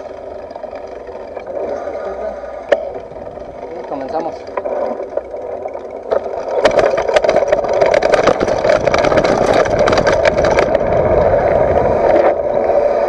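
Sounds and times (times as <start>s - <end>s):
bike clattering over bumps: 0.0s - 12.5s
tyre and wind rushing: 7.3s - 13.0s.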